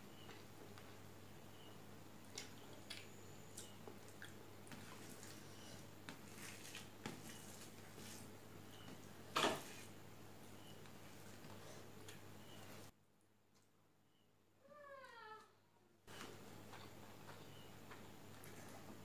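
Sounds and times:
fingers squishing rice: 0:02.3 - 0:08.3.

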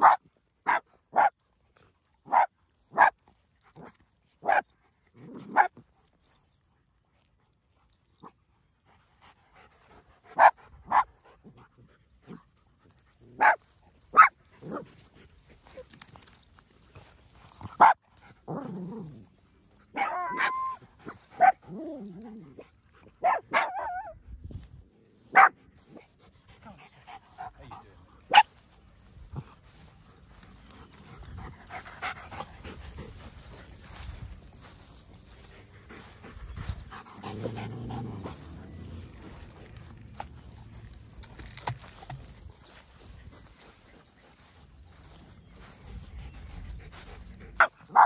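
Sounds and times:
dogs barking: 0:00.0 - 0:01.3, 0:02.3 - 0:03.1, 0:04.4 - 0:04.6, 0:05.5 - 0:05.7, 0:10.3 - 0:11.1, 0:13.4 - 0:14.8, 0:17.7 - 0:18.0, 0:19.9 - 0:21.6, 0:23.2 - 0:24.2, 0:25.3 - 0:25.6, 0:28.3 - 0:28.5, 0:47.5 - 0:48.0
dogs growling and whining: 0:37.1 - 0:39.2.

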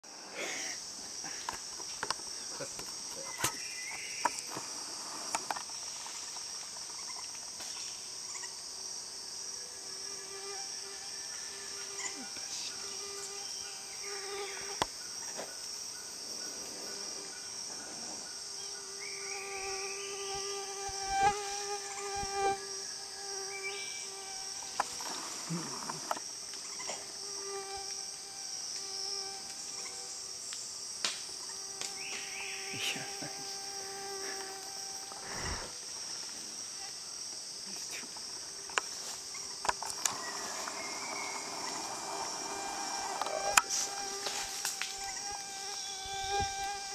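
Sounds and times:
rainforest insects chorus: 0:00.0 - 0:46.9
mosquitoes whining: 0:08.0 - 0:30.4, 0:31.4 - 0:37.0, 0:38.5 - 0:46.9.

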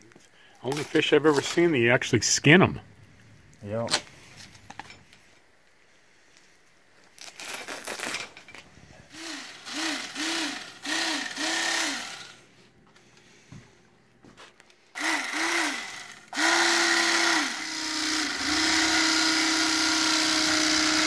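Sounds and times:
electric fillet knife motor whining: 0:09.1 - 0:12.4, 0:15.0 - 0:21.0.

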